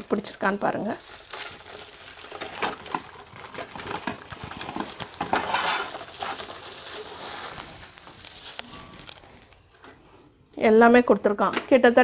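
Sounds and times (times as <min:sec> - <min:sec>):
rustling: 0:01.0 - 0:10.3.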